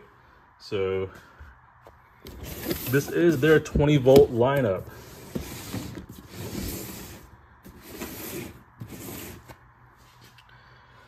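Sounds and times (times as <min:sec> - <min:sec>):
cardboard boxes rustling and scraping: 0:02.2 - 0:10.4.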